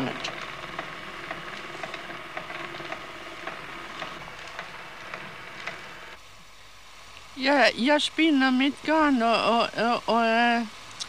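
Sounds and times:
film soundtrack hiss and crackles: 0:00.0 - 0:11.0.

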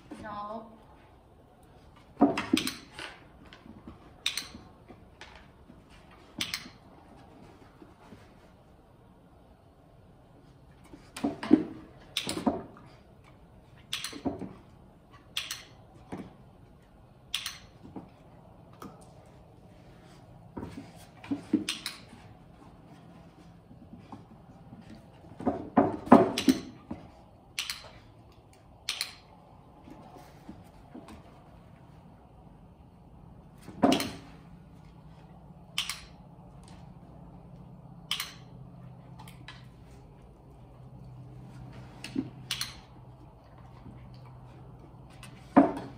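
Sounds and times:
low steady hum: 0:00.0 - 0:45.9
sharp clicks: 0:15.3 - 0:15.8, 0:17.3 - 0:17.7, 0:27.5 - 0:29.3, 0:35.7 - 0:36.7, 0:38.0 - 0:38.5, 0:42.5 - 0:42.9
dog's paws on plywood box: 0:17.8 - 0:27.5.

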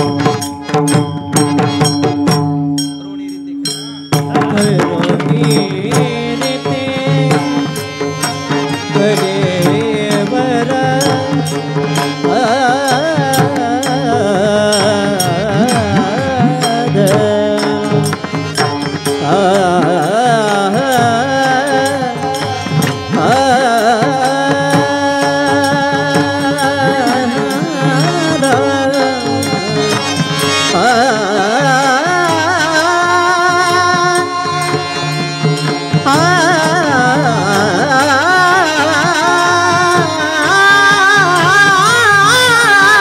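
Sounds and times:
small hand cymbals: 0:00.0 - 0:04.5
barrel drum: 0:00.0 - 0:31.0
men singing devotional melody: 0:00.0 - 0:43.0.

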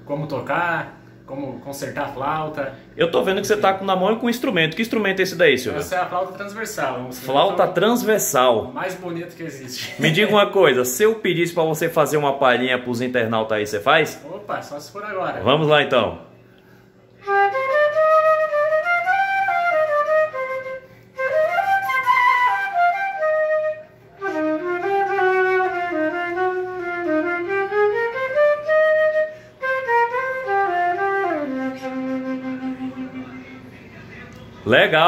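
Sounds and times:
flute melody: 0:17.2 - 0:33.6.

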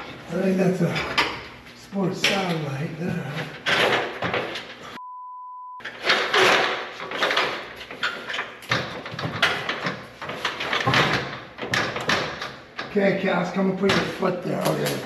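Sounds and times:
ladder scraping and clattering: 0:00.0 - 0:05.0, 0:05.8 - 0:15.0
censor bleep: 0:05.0 - 0:05.8.

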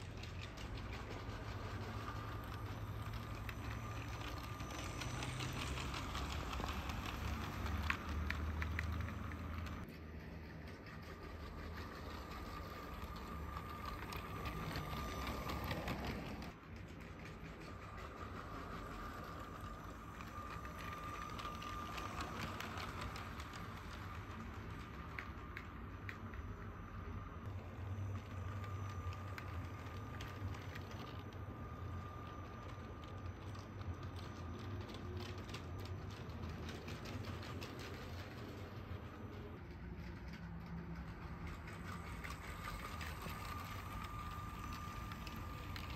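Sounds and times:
toy train wheels clicking: 0:00.0 - 0:45.9
electric motor whine: 0:11.6 - 0:16.6.

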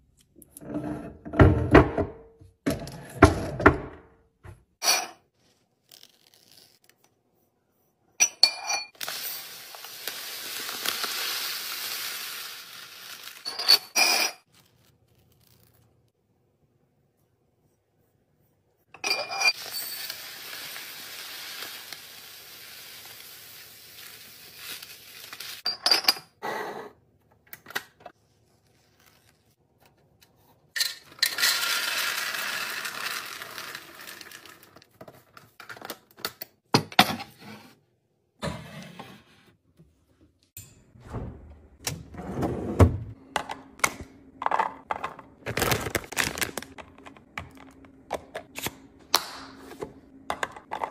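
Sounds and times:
small dry pieces rattling into canister: 0:31.1 - 0:34.9
dry food pouring into jar: 0:31.3 - 0:34.8.

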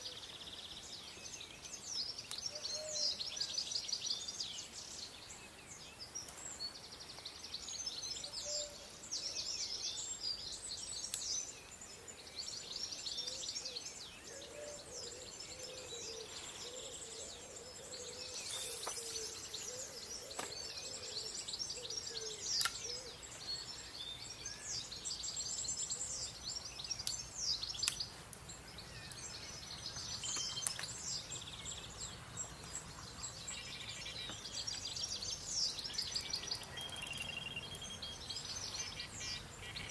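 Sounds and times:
songbirds singing and chirping: 0:00.0 - 0:39.9
sharp clicks: 0:22.6 - 0:22.8.

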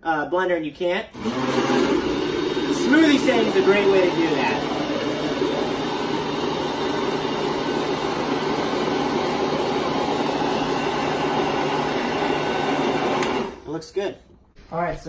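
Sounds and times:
blender whirring: 0:01.1 - 0:13.7.

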